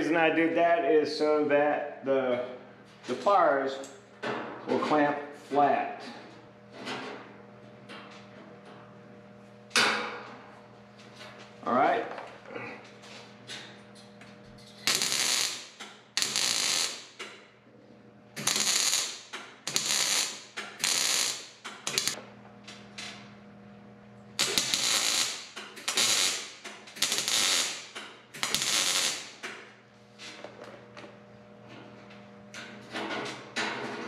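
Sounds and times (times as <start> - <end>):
steady low hum: 0.0 - 33.7
welder crackling bursts: 14.8 - 17.4, 18.4 - 22.2, 24.4 - 29.5.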